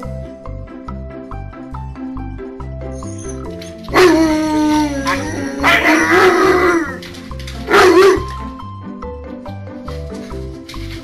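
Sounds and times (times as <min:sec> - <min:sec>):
huskies howling: 0:03.3 - 0:07.0, 0:07.7 - 0:08.5.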